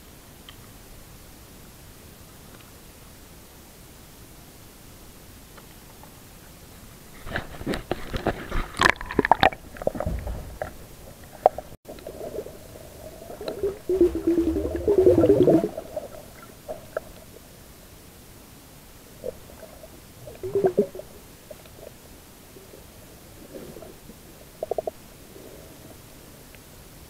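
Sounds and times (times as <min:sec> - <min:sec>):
water splashing: 0:08.5 - 0:17.5, 0:19.2 - 0:22.0
underwater gurgling and bubbling: 0:08.8 - 0:17.5, 0:19.1 - 0:25.5.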